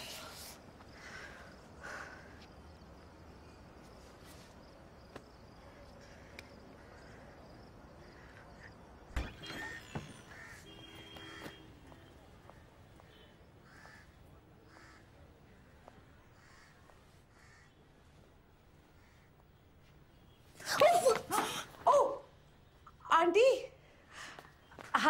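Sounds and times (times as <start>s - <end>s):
crows cawing: 5.6s - 8.9s, 9.5s - 11.6s, 13.6s - 15.1s, 16.3s - 17.8s, 19.0s - 19.3s.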